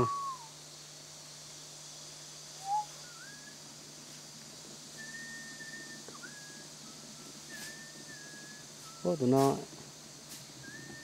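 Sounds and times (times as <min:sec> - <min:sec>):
thin whistled notes: 0:00.0 - 0:00.6, 0:02.6 - 0:03.6, 0:04.9 - 0:09.6, 0:10.6 - 0:11.0.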